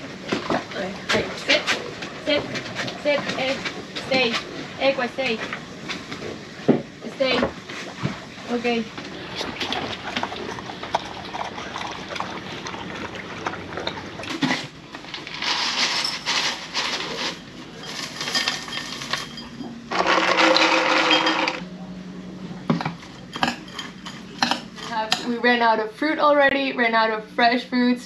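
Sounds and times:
dog eating from steel bowl: 7.7 - 21.6
dry cereal pouring into bowls: 15.1 - 17.4, 19.9 - 21.6.

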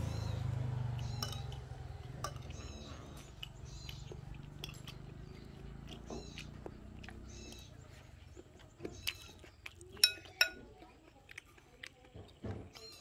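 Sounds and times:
metal spoon clinking on glass: 1.1 - 1.6, 4.6 - 4.9, 10.0 - 10.6.

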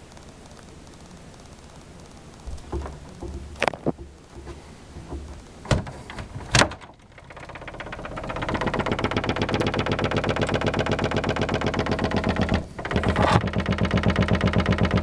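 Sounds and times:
door rattling in its frame: 2.5 - 15.0
sharp knocks: 2.5 - 15.0.

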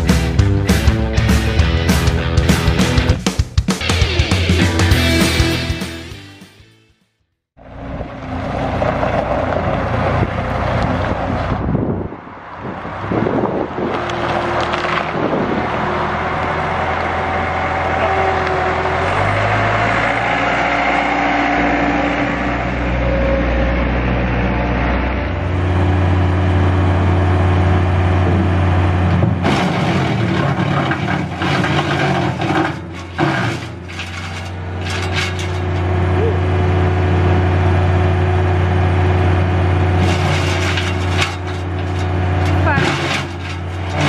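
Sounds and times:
diesel engine running: 7.6 - 44.0
branches cracking in wood chipper: 13.9 - 15.8.

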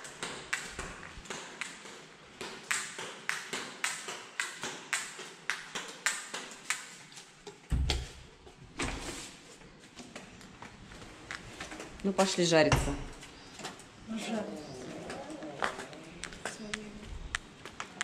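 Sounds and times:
door thump: 7.7 - 8.1
footsteps on stone floor: 15.0 - 18.0.

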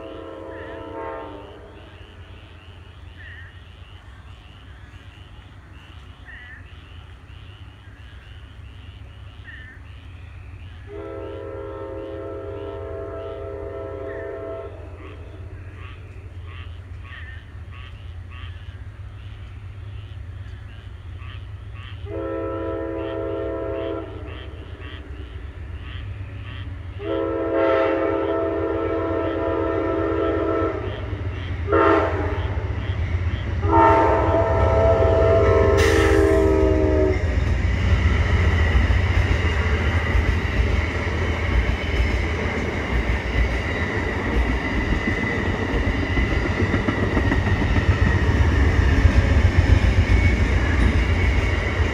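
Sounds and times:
locomotive horn blasts: 0.0 - 1.8, 10.9 - 15.0, 22.1 - 24.4, 27.0 - 32.6, 33.6 - 37.4
train rumbling past: 0.0 - 51.9.

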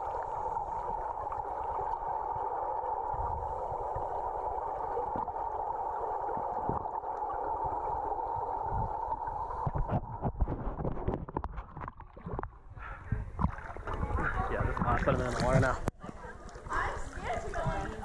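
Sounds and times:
muffled underwater hiss: 0.0 - 18.0
splashing and knocking: 9.6 - 15.9.

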